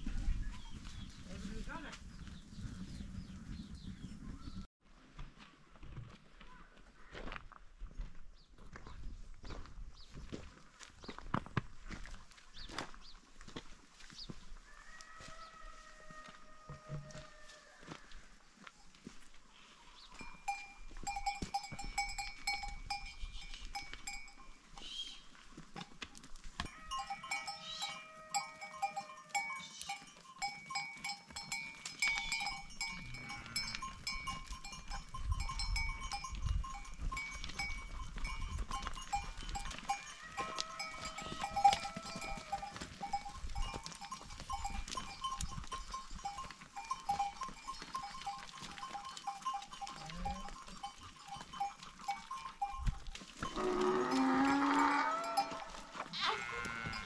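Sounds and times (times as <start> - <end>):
sheep bells clinking: 19.9 - 57.0
sheep bleating: 40.0 - 42.6, 53.5 - 57.0.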